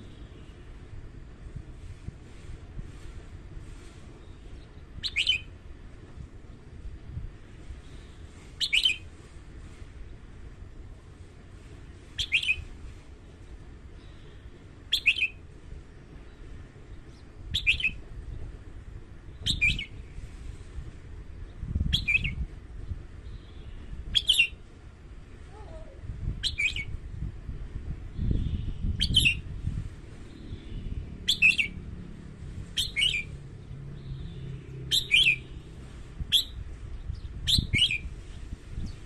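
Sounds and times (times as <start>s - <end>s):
bird singing whistled phrases: 5.0s - 5.5s, 8.6s - 9.0s, 12.2s - 12.7s, 14.9s - 15.4s, 17.5s - 18.0s, 19.4s - 19.9s, 21.9s - 22.4s, 23.3s - 24.6s, 26.4s - 26.9s, 28.4s - 29.4s, 31.3s - 31.7s, 32.8s - 33.3s, 34.9s - 35.5s, 36.3s - 36.6s, 37.2s - 38.1s.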